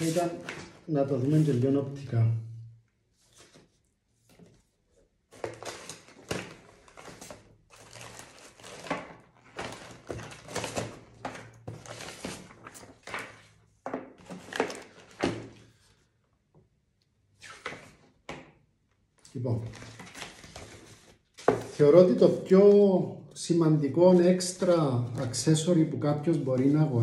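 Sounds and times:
packaging rustling: 5.3 - 13.4.

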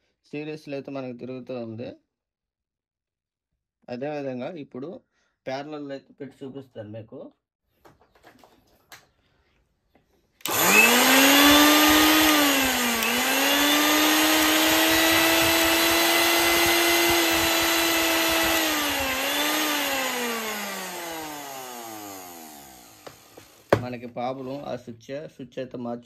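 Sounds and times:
motor whining: 10.4 - 23.8.

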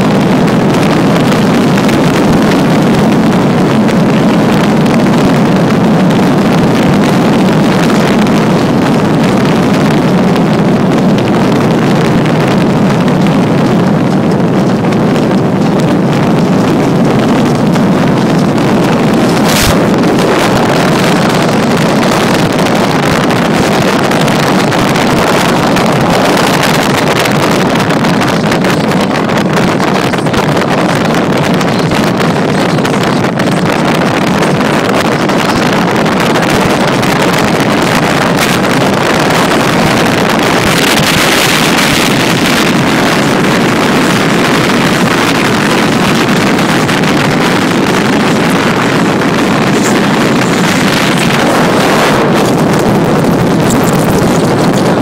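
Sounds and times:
wind rushing over microphone: 0.0 - 55.0.

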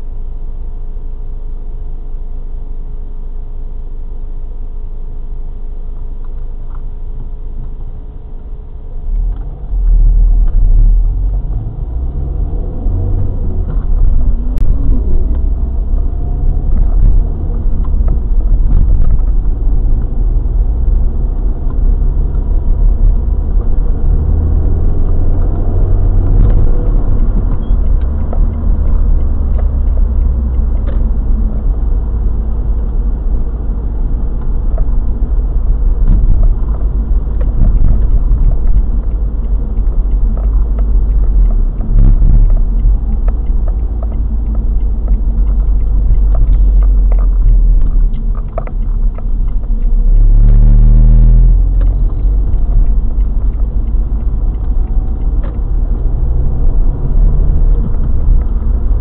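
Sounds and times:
car cabin road and engine noise: 0.0 - 59.0
faint clicks: 51.4 - 59.0.

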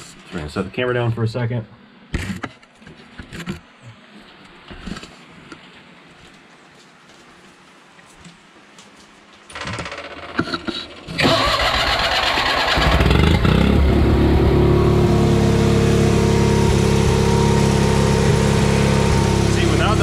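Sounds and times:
starter cranking: 9.5 - 13.8
engine idling: 11.1 - 20.0.

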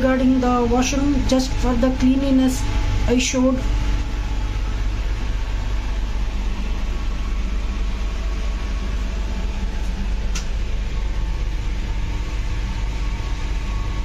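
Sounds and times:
train coach rumble: 0.0 - 14.0
short click: 9.8 - 10.5.

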